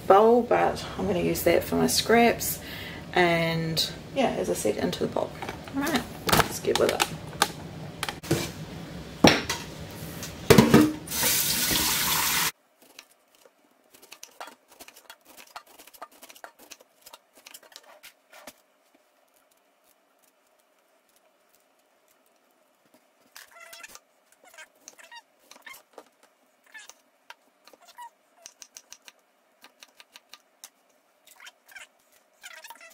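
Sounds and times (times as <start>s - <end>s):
tap water running into sink: 11.1s - 12.5s.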